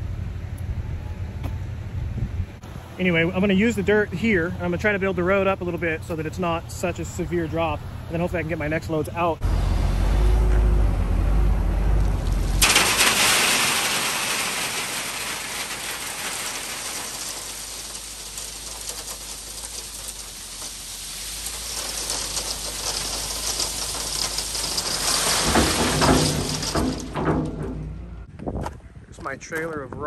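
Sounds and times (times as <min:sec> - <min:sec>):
low truck engine rumble: 0:00.0 - 0:29.1
dirt and gravel pouring: 0:12.0 - 0:28.3.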